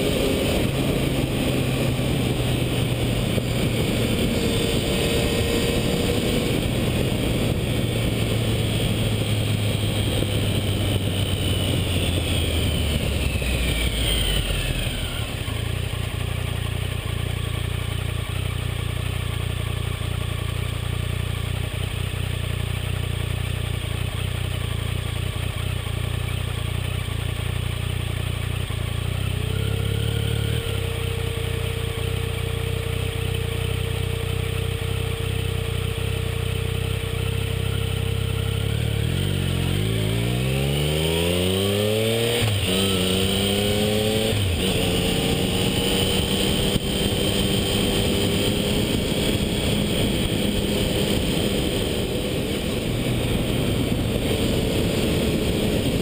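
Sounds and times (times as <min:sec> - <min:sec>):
wind rush: 0:00.0 - 0:15.4, 0:39.7 - 0:56.0
motorcycle engine running: 0:00.0 - 0:56.0.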